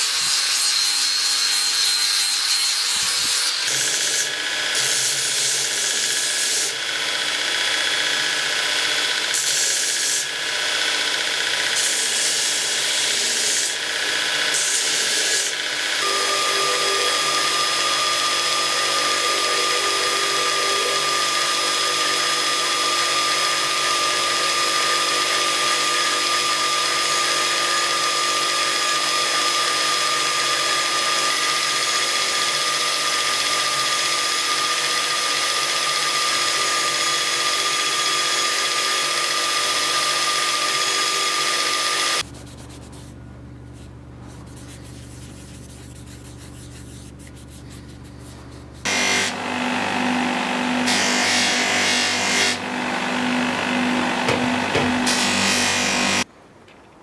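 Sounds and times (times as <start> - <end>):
belt grinder whining: 2.9 - 42.2, 48.8 - 56.3
wood grinding on sanding belt: 6.2 - 43.1, 44.5 - 56.3.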